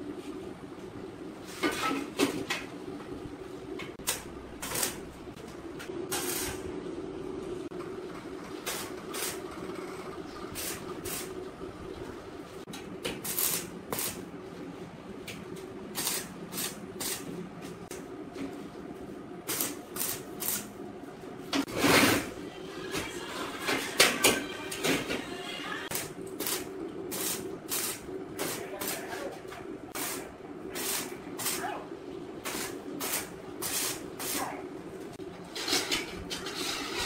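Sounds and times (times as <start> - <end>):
welding arc crackle: 4.0 - 5.2, 8.7 - 9.5, 10.6 - 11.4, 13.2 - 14.2, 15.9 - 17.2, 19.4 - 20.8, 25.9 - 29.1, 29.9 - 31.7, 32.4 - 34.4
welder hum: 4.0 - 6.7, 8.6 - 9.5, 10.5 - 11.5, 12.4 - 14.3, 15.9 - 17.3, 19.4 - 20.8, 23.9 - 35.1.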